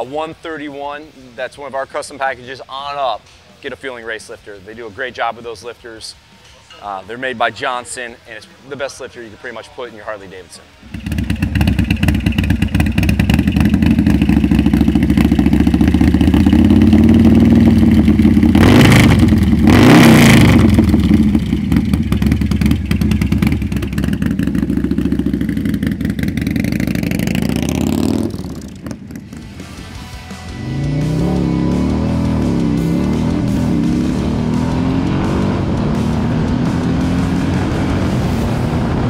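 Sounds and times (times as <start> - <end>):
motorcycle engine running hard: 10.8 - 39.0.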